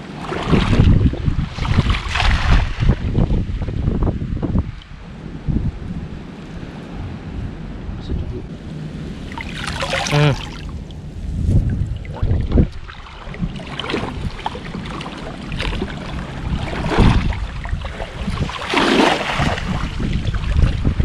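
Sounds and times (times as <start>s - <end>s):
water splashing and streaming: 0.0s - 4.0s, 8.7s - 21.0s
wind on microphone: 0.0s - 21.0s
big splash of net: 1.5s - 3.0s, 18.4s - 20.1s
person wading through water: 9.2s - 10.9s, 11.9s - 21.0s.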